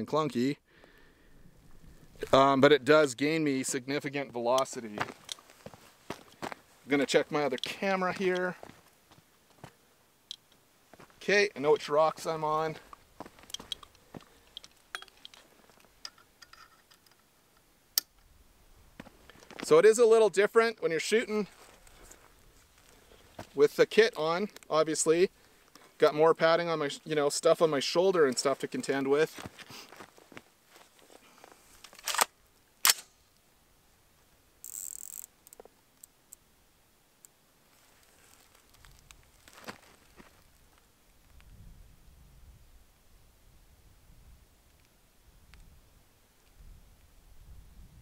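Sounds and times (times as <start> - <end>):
hands handling rifle clicks: 12.9 - 18.3, 31.8 - 33.1
sharp click: 31.9 - 33.2.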